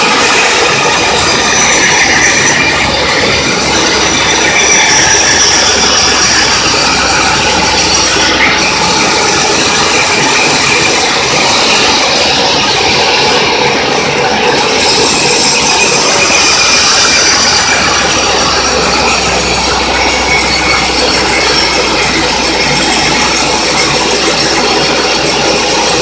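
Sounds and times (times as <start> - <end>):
band sawmill cutting log: 0.0 - 26.0.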